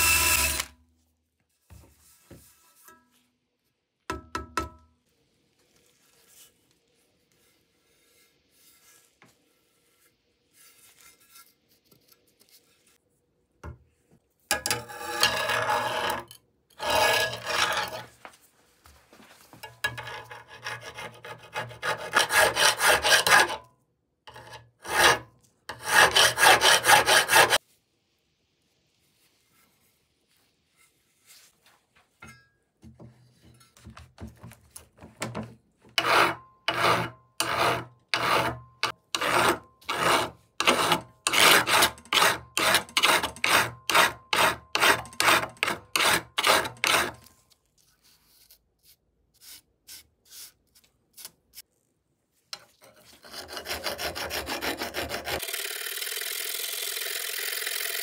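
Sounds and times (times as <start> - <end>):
hand rubbing metal trowel: 14.5 - 18.2, 19.6 - 23.6, 24.3 - 27.6, 36.0 - 51.7, 52.5 - 55.4.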